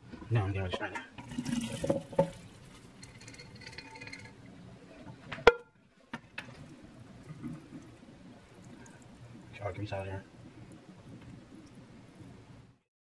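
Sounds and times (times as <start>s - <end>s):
metal colander rattling: 1.2s - 4.4s.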